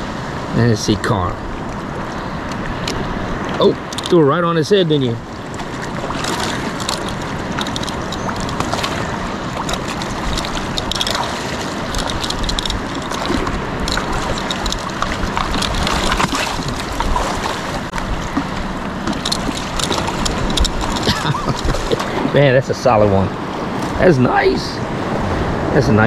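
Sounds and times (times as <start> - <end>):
water sloshing and lapping: 1.4 - 24.0
small water splashes: 5.0 - 22.4
wind on microphone: 5.2 - 22.5.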